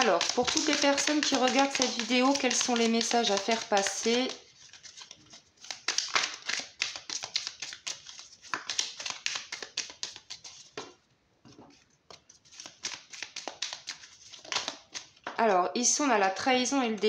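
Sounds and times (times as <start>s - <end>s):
cards being shuffled: 0.0s - 11.0s, 11.7s - 15.4s.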